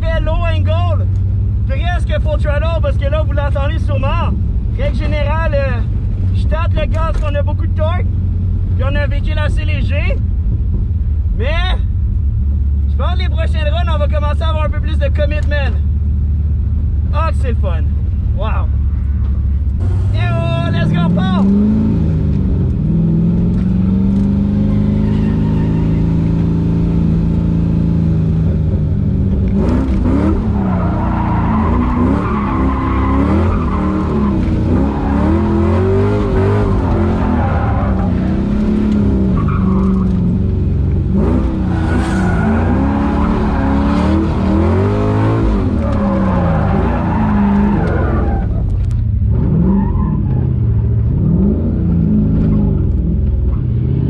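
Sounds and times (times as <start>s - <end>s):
car engine revving: 12.1s - 54.0s
tyre squeal: 24.6s - 26.5s, 30.3s - 40.4s, 41.3s - 44.4s, 45.5s - 48.8s, 49.6s - 50.6s.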